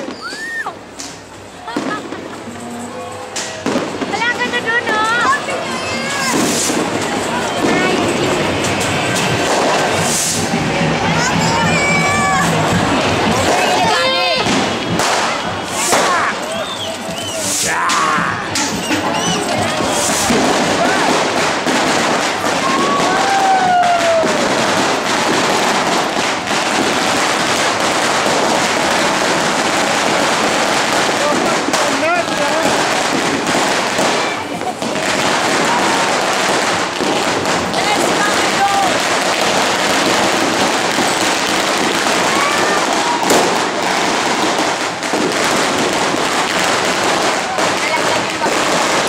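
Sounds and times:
falling firework whistle: 0:00.0 - 0:00.8, 0:13.4 - 0:21.3
firework whistle: 0:00.0 - 0:01.2, 0:11.9 - 0:31.1
fireworks crackling: 0:00.0 - 0:49.0.

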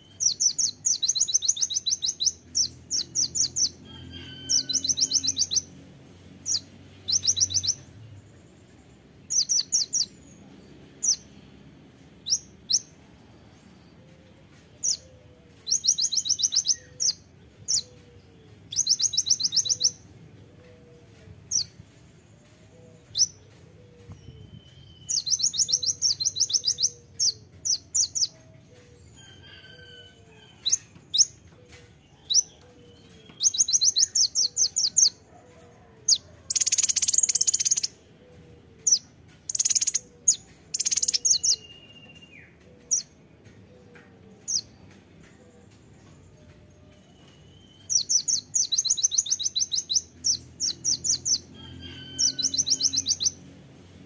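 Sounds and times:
bird singing high rapid trills: 0:36.5 - 0:38.0, 0:38.8 - 0:42.3.

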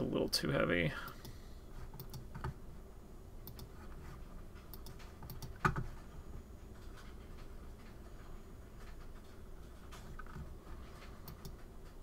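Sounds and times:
keyboard and mouse clicks: 0:01.9 - 0:02.6, 0:03.4 - 0:03.7, 0:04.7 - 0:05.9, 0:09.9 - 0:12.0.

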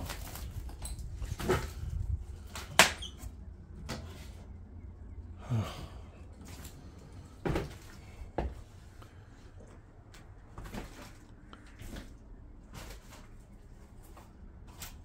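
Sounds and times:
low rumble: 0:00.0 - 0:02.6, 0:03.3 - 0:10.5.

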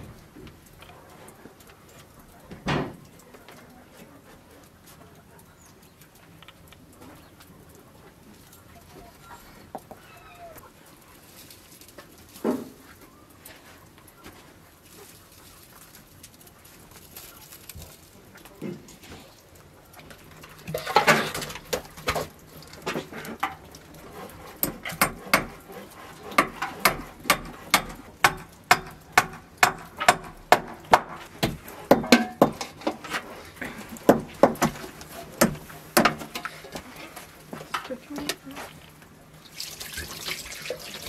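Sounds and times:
hammer striking wood: 0:24.6 - 0:25.6, 0:26.3 - 0:32.7, 0:35.4 - 0:36.3.

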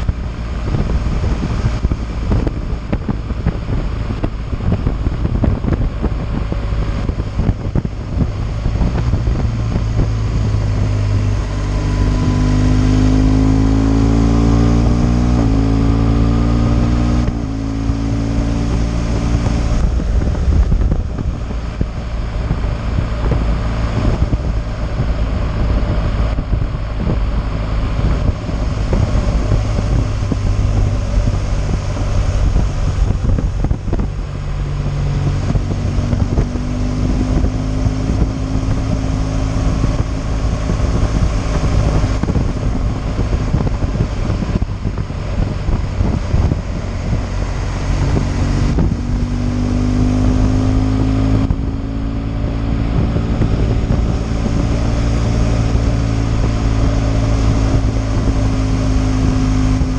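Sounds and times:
motorcycle engine accelerating: 0:00.0 - 0:59.9
wind rushing on microphone: 0:00.0 - 0:59.9.

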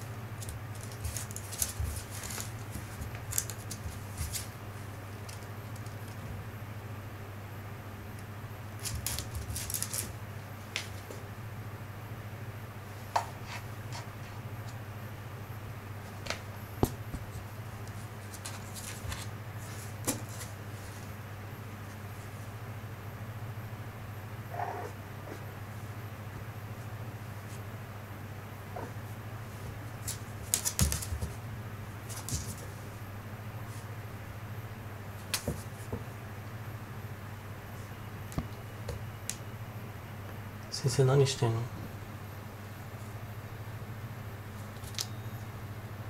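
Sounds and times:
steady low hum: 0:00.0 - 0:46.0
kitten claws scraping on hard mat: 0:00.4 - 0:04.6, 0:32.0 - 0:32.8
kitten claws tapping on hard mat: 0:30.1 - 0:31.4, 0:32.1 - 0:32.6.

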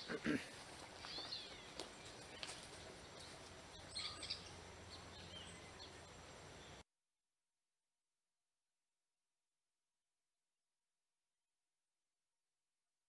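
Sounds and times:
bird chirps: 0:01.0 - 0:06.8.

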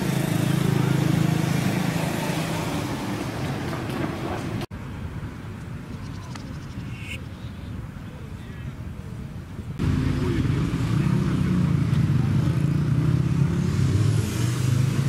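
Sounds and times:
vehicle passing by: 0:00.0 - 0:04.7, 0:09.8 - 0:15.0
steady street background: 0:00.0 - 0:15.0.

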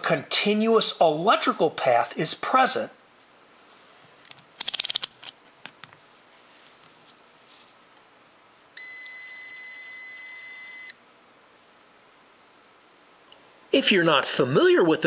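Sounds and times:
high-pitched multimeter beep: 0:08.8 - 0:11.0.

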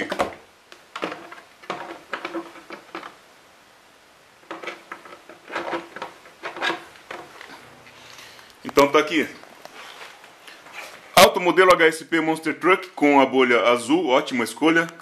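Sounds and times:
plastic knocks and rustles: 0:00.0 - 0:03.2, 0:04.4 - 0:07.6.

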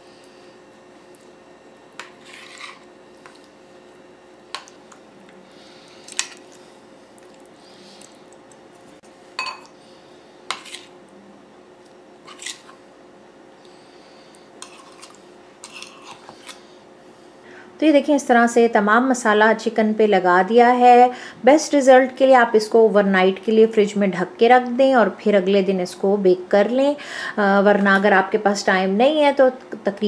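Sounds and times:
spoons clinking on ceramic bowls: 0:09.4 - 0:09.7.

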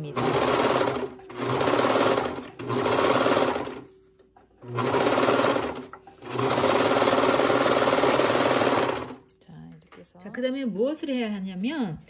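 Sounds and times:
serger stitching with rattle: 0:00.0 - 0:03.9, 0:04.6 - 0:09.2.

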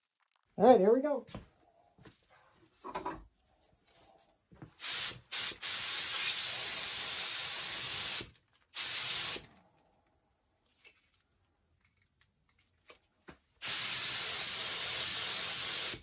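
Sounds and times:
spray gun hissing: 0:04.8 - 0:09.4, 0:13.6 - 0:16.0.

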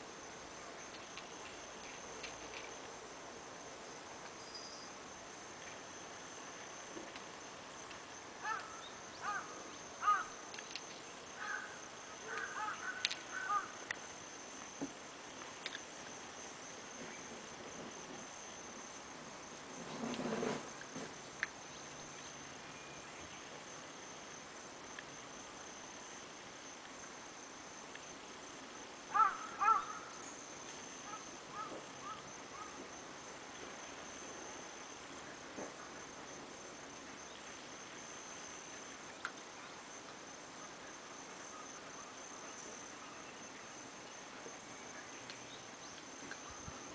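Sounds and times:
high-pitched insect drone: 0:00.1 - 0:46.9
faint chirps: 0:04.2 - 0:05.0.

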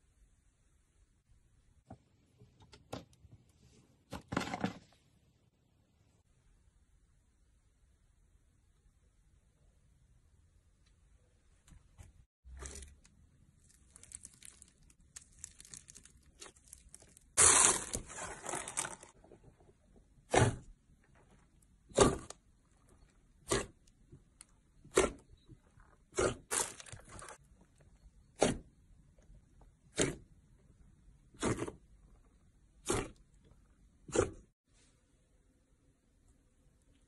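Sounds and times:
slime crackling and crunching: 0:12.5 - 0:19.2, 0:26.2 - 0:27.4.

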